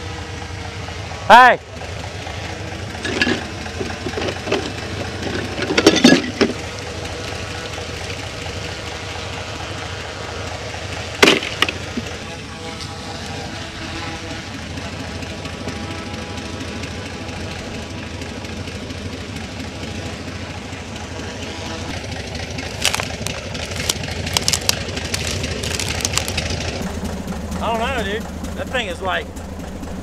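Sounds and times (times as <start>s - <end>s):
engine idling: 0.0s - 30.0s
reeds crackling underfoot: 22.1s - 26.8s.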